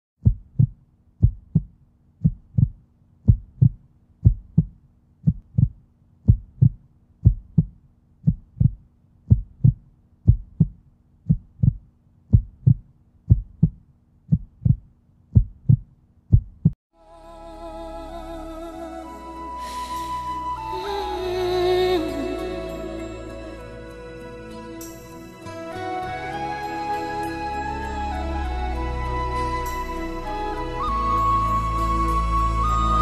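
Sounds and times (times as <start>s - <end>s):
heartbeat thumps: 0.2s - 16.8s.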